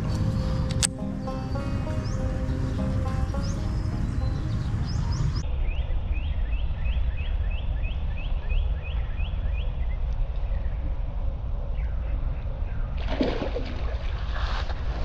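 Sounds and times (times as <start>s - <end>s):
low rumble: 0.0s - 6.5s
bird chirping: 0.0s - 10.8s.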